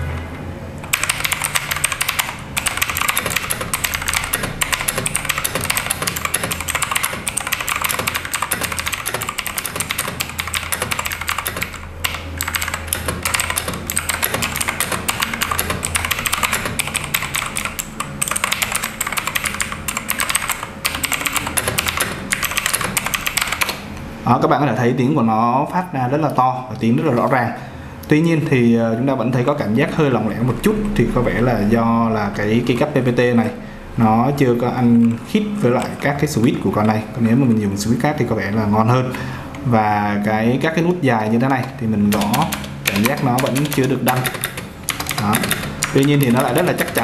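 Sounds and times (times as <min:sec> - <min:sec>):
mechanical keyboard typing clicks: 0:00.8 - 0:23.8, 0:41.5 - 0:47.0.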